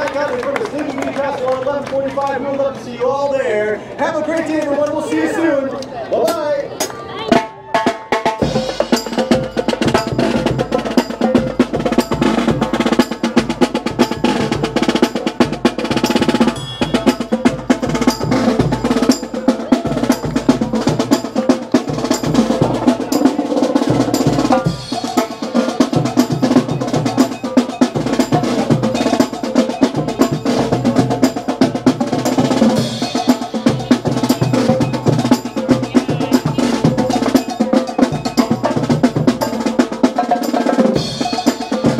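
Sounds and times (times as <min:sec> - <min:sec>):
tenor drums: 0:06.2 - 0:41.9
cymbals: 0:07.3 - 0:41.9
bass drum: 0:08.4 - 0:40.1.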